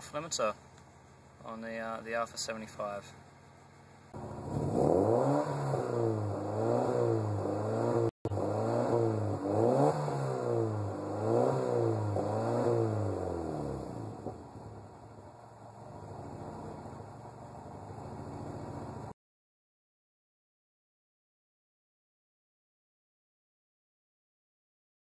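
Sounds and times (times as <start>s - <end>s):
car engine revving: 4.2s - 14.9s.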